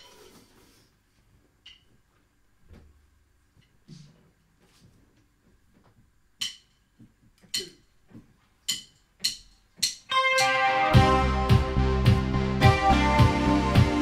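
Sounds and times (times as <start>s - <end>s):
synth-pop band playing: 10.1s - 14.0s.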